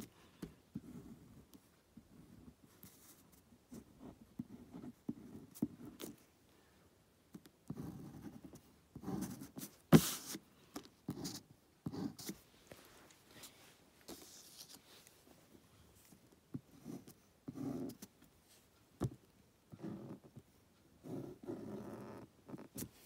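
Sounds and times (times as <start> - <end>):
pencil scratching on paper: 7.7 - 10.5, 11.1 - 12.4, 16.7 - 18.1, 19.7 - 20.4, 21.0 - 22.9.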